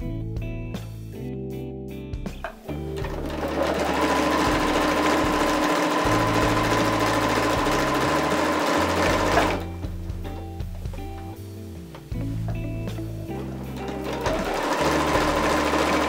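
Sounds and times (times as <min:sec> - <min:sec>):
background music: 0:00.0 - 0:16.0
electric sewing machine stitching: 0:02.9 - 0:09.8, 0:13.4 - 0:16.0.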